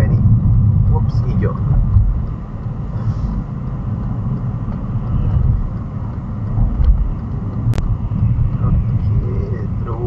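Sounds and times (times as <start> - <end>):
car engine and tyre rumble: 0.0 - 10.0.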